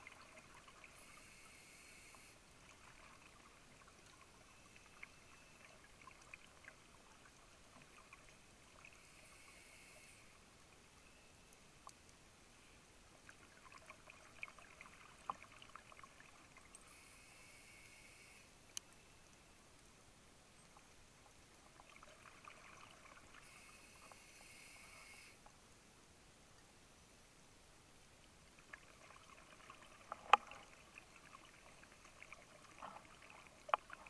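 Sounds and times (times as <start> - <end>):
regulator hiss on inhale: 0.8 - 2.6, 8.8 - 11.3, 16.7 - 19.2, 23.4 - 25.5.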